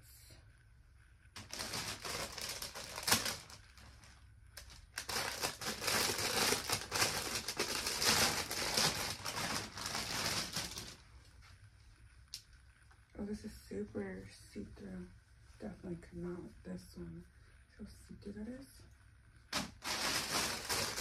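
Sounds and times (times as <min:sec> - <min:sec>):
plastic bag crinkling: 0:01.4 - 0:11.0, 0:19.5 - 0:21.0.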